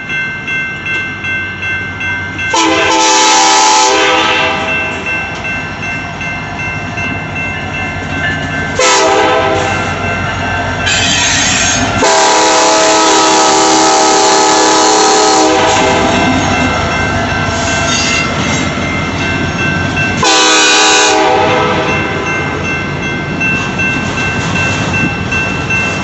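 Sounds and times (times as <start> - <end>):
train rumble and wheel noise: 0.0 - 26.0
locomotive air horn: 2.5 - 4.7, 8.8 - 9.9, 10.8 - 16.2, 20.2 - 22.0.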